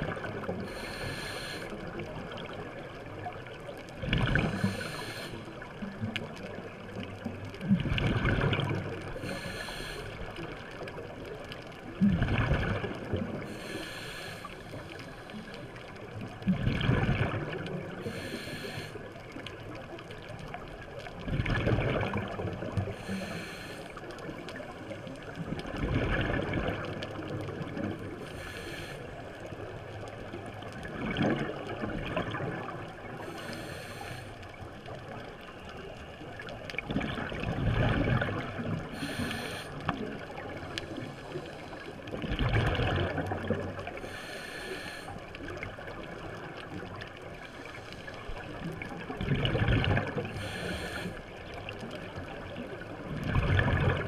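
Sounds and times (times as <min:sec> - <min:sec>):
regulator hissing inhalation: 0:00.7 - 0:01.7, 0:13.5 - 0:15.4, 0:18.1 - 0:18.9, 0:23.0 - 0:24.0, 0:39.0 - 0:39.8, 0:44.0 - 0:45.1, 0:50.4 - 0:51.2
exhaled bubbles rushing: 0:04.0 - 0:04.7, 0:07.6 - 0:09.1, 0:12.0 - 0:13.4, 0:16.4 - 0:18.0, 0:21.2 - 0:22.9, 0:25.3 - 0:28.0, 0:30.8 - 0:33.1, 0:36.7 - 0:39.0, 0:42.1 - 0:44.0, 0:48.4 - 0:50.7, 0:51.8 - 0:54.0.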